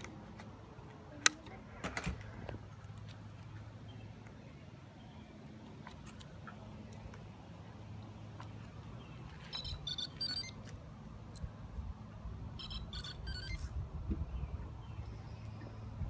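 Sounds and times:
electronic start-up beeps: 9.5 - 10.6, 12.6 - 13.7.

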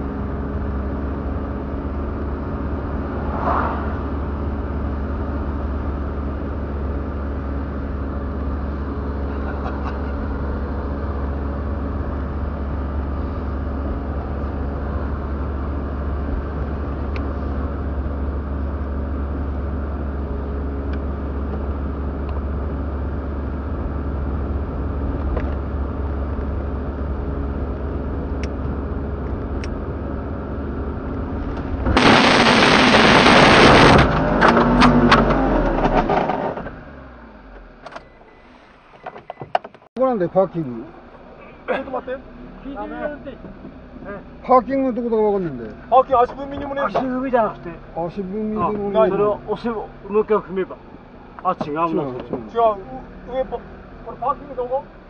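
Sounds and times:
car engine and road noise: 0.0 - 55.0
car crashing and scraping: 31.6 - 36.9.

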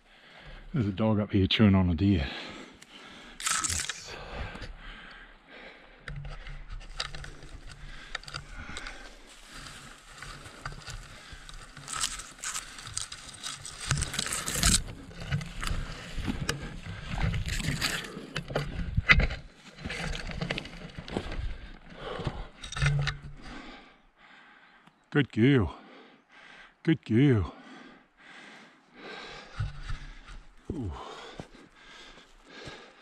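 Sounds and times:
twigs scraping against camera: 3.3 - 4.1, 6.1 - 21.6
footsteps crunching on stones: 3.4 - 4.0, 6.8 - 22.7.

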